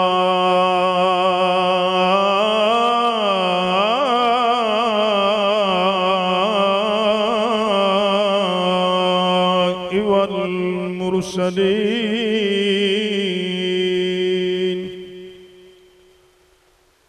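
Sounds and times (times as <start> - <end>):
man chanting: 0.0 - 16.2.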